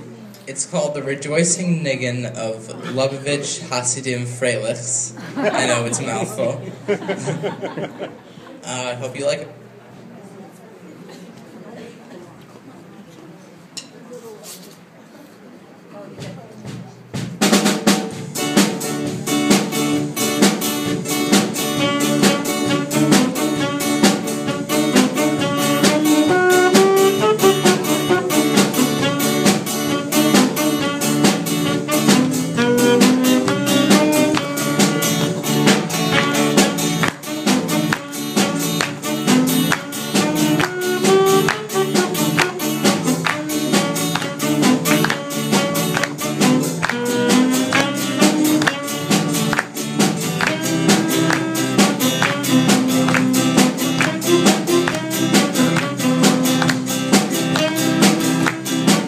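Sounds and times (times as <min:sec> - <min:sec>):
drum kit beat: 0:16.1 - 0:59.0
guitar: 0:17.4 - 0:59.0
keyboard: 0:18.1 - 0:59.0
saxophone melody: 0:18.4 - 0:59.0.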